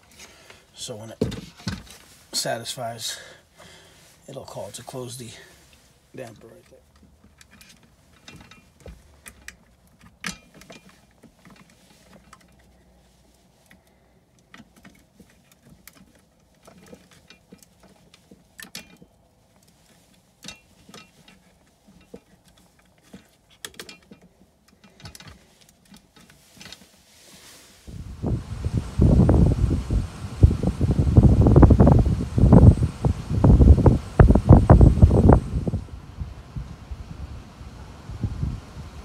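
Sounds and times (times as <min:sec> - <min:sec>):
faint clicks and rattles of handling: 0:03.6 - 0:27.8.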